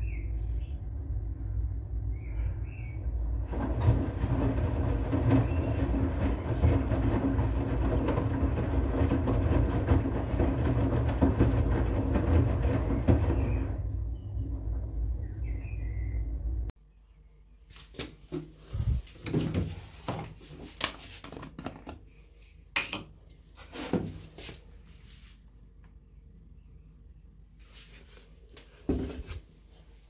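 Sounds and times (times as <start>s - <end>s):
low motor rumble: 0.0s - 16.8s, 18.7s - 19.1s
washing machine drum tumbling laundry: 2.6s - 16.7s, 18.2s - 20.8s
water sloshing: 3.5s - 14.7s.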